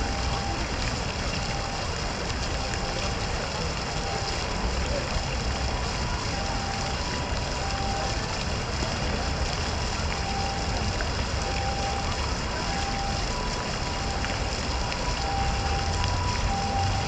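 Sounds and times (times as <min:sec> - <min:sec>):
fountain water splashing: 0:00.0 - 0:17.0
low city rumble: 0:00.0 - 0:17.0
two-tone beeping: 0:10.2 - 0:17.0.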